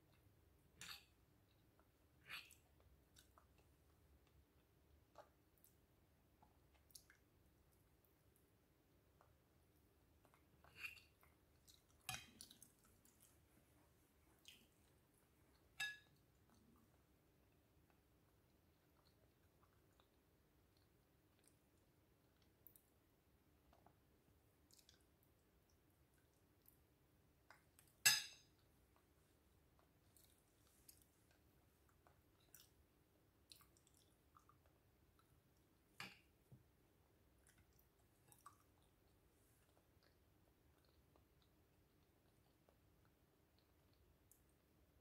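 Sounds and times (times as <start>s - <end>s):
soft chewing: 0.0s - 45.0s
metal spoon clinking on ceramic bowl: 28.1s - 28.5s.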